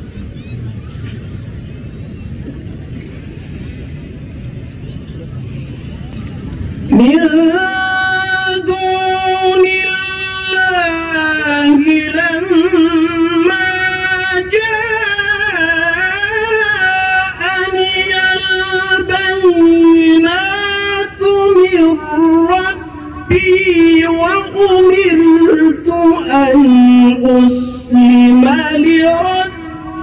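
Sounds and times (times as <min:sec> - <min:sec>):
man reciting melodically: 0:06.9 - 0:30.0.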